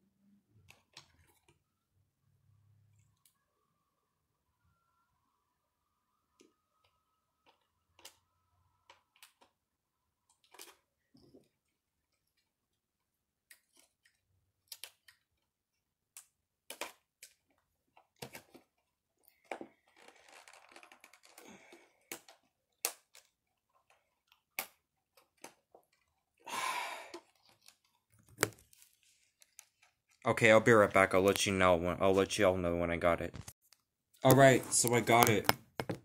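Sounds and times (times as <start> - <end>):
plastic package rustling: 19.8 - 21.5.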